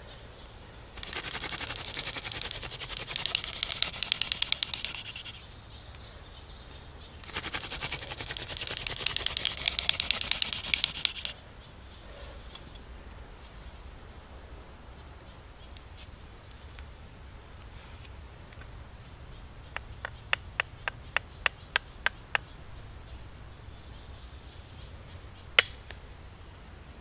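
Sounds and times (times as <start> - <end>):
wood grinding on wood: 1.0 - 5.4, 7.2 - 11.3.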